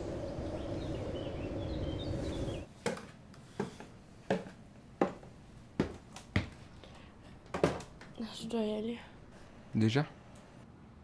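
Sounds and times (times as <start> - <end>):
faint bird chirps: 0.0 - 2.7
outdoor background noise: 0.0 - 11.0
footsteps on wooden stairs: 3.6 - 6.6.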